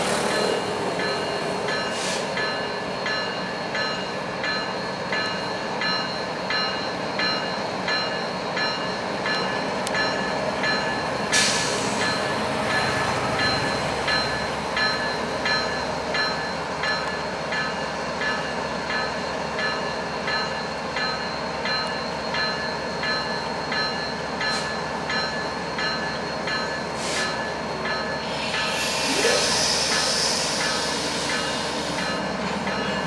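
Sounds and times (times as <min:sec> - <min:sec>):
freight train rumble and clatter: 0:00.0 - 0:33.0
short hisses: 0:28.3 - 0:31.8.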